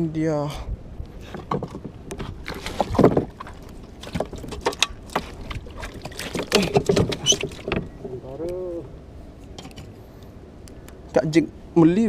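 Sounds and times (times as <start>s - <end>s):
knocks and clatters in canoe: 1.2s - 8.4s
fish splashing: 2.5s - 8.0s.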